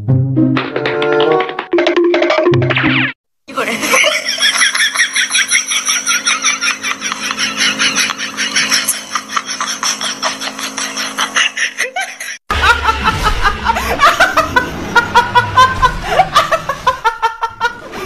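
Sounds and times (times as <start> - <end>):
young woman laughing loudly: 3.7 - 18.0
quick pulsing laugh: 3.9 - 18.0.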